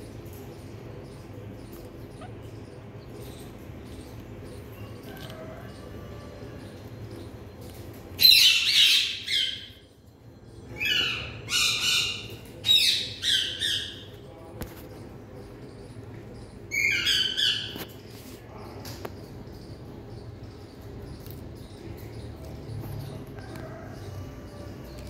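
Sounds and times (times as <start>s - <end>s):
parakeets squawking: 1.6s - 2.8s.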